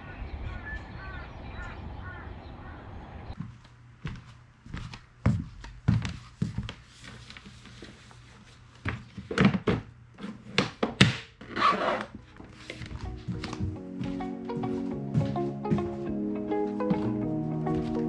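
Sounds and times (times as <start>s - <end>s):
footsteps on wooden floorboards: 3.3s - 9.9s, 12.1s - 18.0s.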